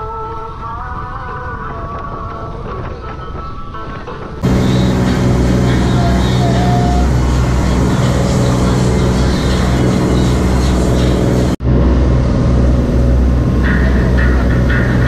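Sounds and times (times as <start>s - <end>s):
wind: 0.0s - 15.0s
boat engine running: 1.2s - 15.0s
rushing water: 4.4s - 11.6s.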